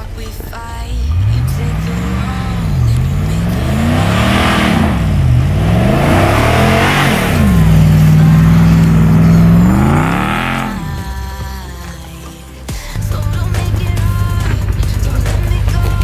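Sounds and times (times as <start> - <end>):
truck engine revving: 0.0 - 16.0
spinning tyres hissing in snow: 0.2 - 11.0.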